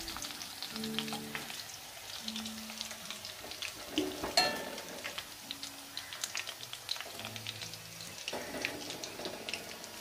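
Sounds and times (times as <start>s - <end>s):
hot oil crackling and spitting: 0.0s - 10.0s
metal spoon clink: 4.4s - 4.7s.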